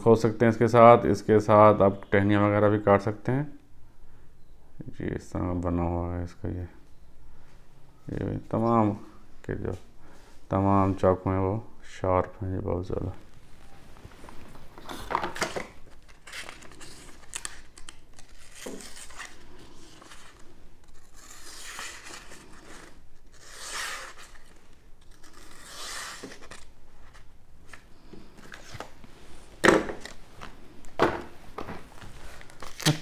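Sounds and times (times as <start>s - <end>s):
knife slicing paper: 20.9s - 24.5s, 25.1s - 26.7s.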